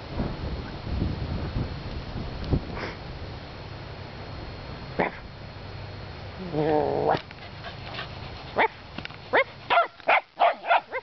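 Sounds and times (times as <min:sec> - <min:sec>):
dog growling low: 0:06.4 - 0:08.1
dog barking in high yips: 0:08.6 - 0:11.0.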